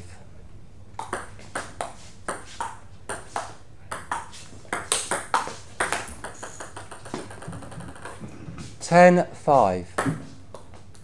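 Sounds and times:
table tennis ball ticking: 1.0s - 8.2s.

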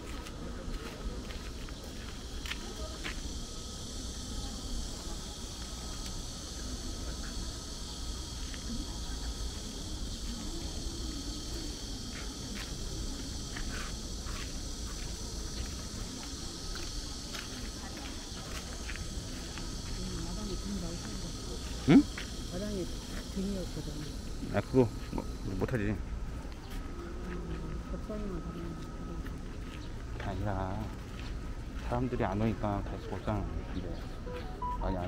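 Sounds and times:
distant people talking: 0.0s - 35.0s
insects shrilling: 1.7s - 25.7s.

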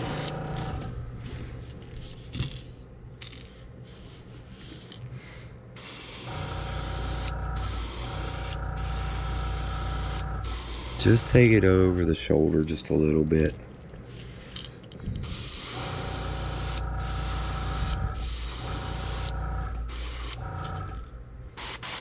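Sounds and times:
airbrush spraying paint: 0.0s - 0.3s, 3.8s - 5.0s, 5.8s - 11.5s, 15.2s - 20.5s, 21.6s - 22.0s
steady low hum: 0.0s - 21.8s.

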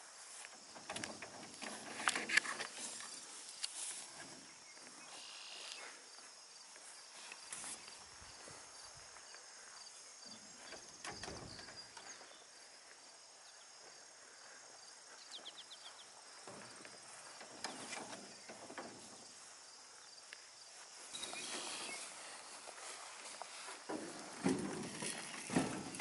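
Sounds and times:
crickets chirring: 0.0s - 26.0s
soft knocks and rustles: 16.4s - 19.5s, 21.2s - 26.0s.

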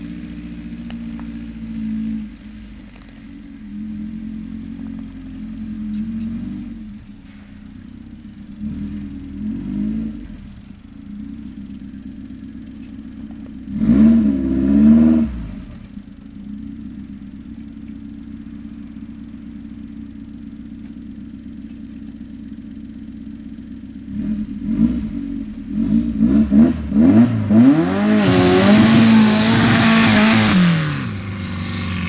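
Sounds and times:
dune buggy engine idling and revving: 0.0s - 32.0s.

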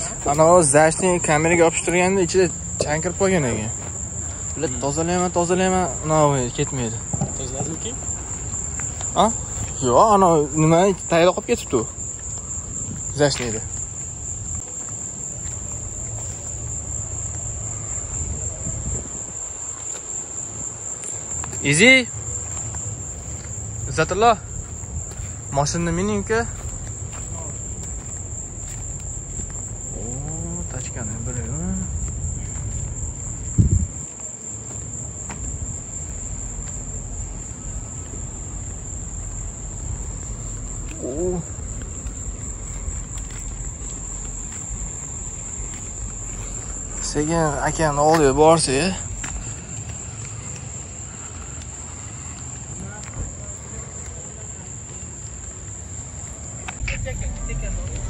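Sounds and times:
insect chorus drone: 0.0s - 58.0s
thump: 7.1s - 7.8s
low rumble: 26.5s - 34.1s, 56.8s - 58.0s.

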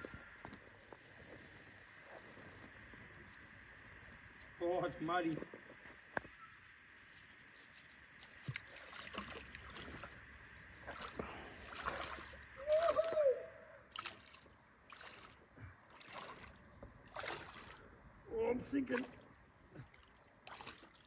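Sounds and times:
water splashing and sloshing: 7.0s - 21.0s.

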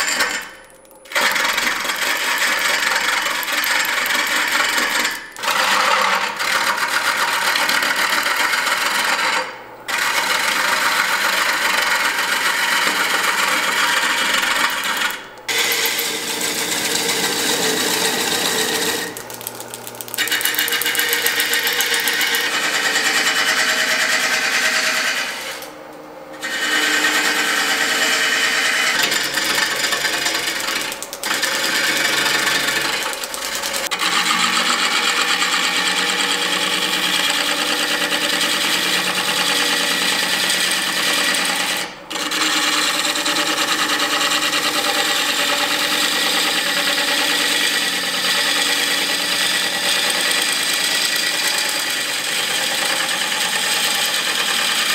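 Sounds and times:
wood lathe running: 0.0s - 25.7s, 26.3s - 54.9s.

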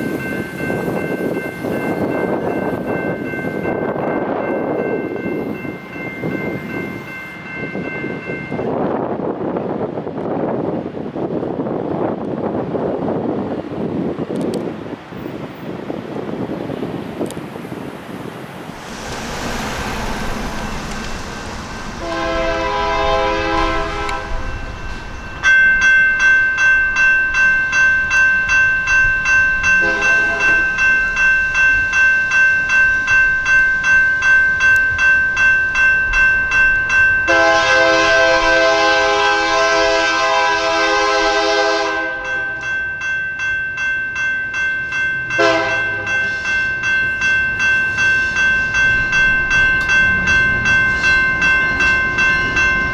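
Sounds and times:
electronic crossing bell: 0.0s - 8.7s, 24.3s - 37.9s, 42.1s - 52.9s
train horn blasts: 22.0s - 24.6s, 29.8s - 30.7s, 37.3s - 42.6s, 45.4s - 46.4s.

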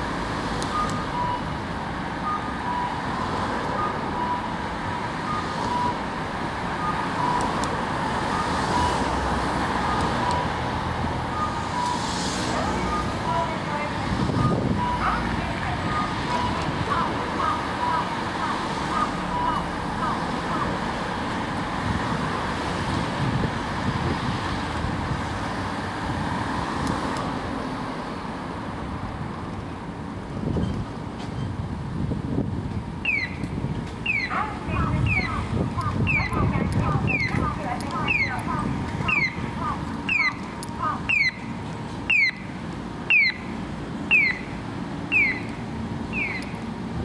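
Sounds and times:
street traffic noise: 0.0s - 47.0s
tram rumbling along track: 0.0s - 47.0s
crossing signal chirps: 0.7s - 1.6s, 2.2s - 6.1s, 6.8s - 7.6s, 11.3s - 12.1s, 14.3s - 15.2s, 15.8s - 16.7s, 17.4s - 20.7s, 33.0s - 46.6s.

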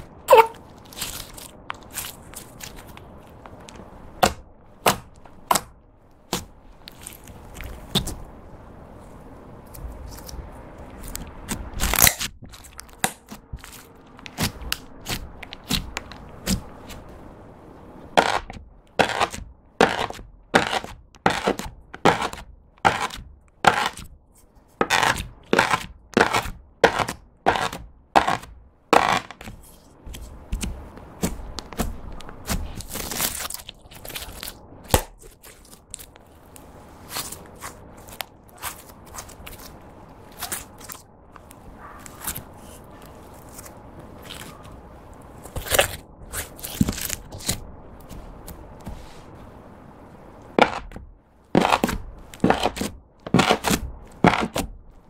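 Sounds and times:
knife chopping on wooden board: 4.2s - 5.7s, 18.2s - 24.1s, 24.8s - 32.8s, 50.6s - 51.0s, 51.6s - 54.7s.

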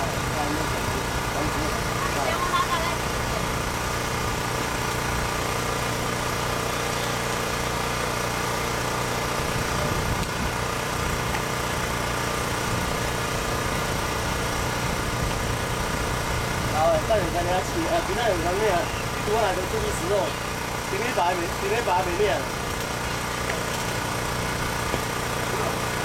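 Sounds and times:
steady mechanical hum: 0.0s - 26.0s.

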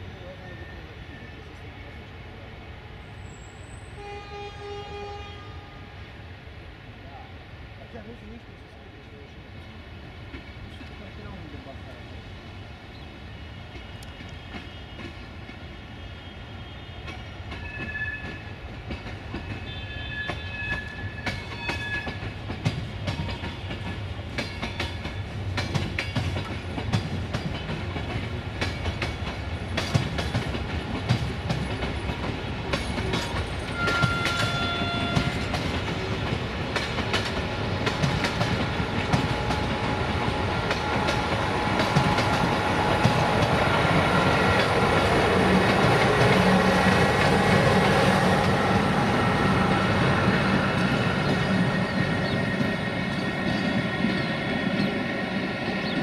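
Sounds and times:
wheels clacking over rail joints: 17.0s - 48.8s.

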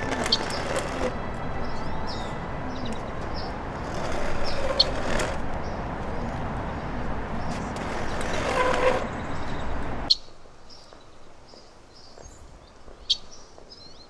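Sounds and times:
traffic rumble: 0.0s - 14.0s
bird chirps: 9.1s - 14.0s.

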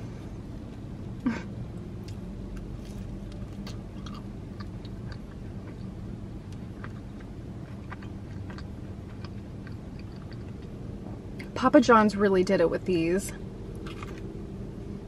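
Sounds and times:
low hum: 0.0s - 15.0s
person chewing: 2.0s - 11.5s, 13.8s - 14.2s.

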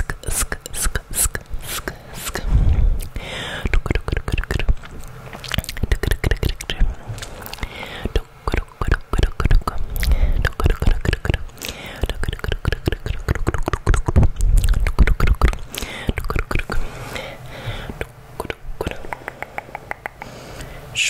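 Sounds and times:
wet mouth clicks and smacks: 0.0s - 2.4s, 3.0s - 16.8s, 18.0s - 20.7s
low puffs against microphone: 1.7s - 3.2s.

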